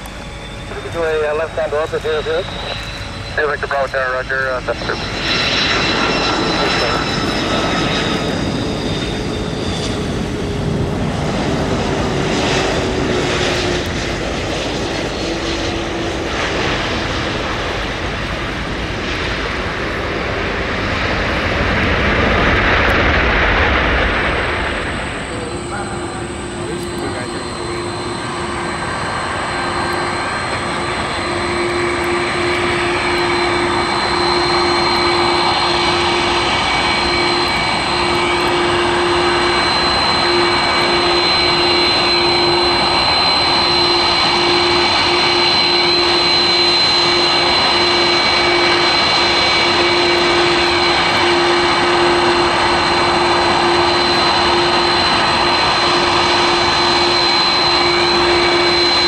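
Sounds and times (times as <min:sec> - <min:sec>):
jet aircraft taxiing: 0:00.0 - 0:59.0.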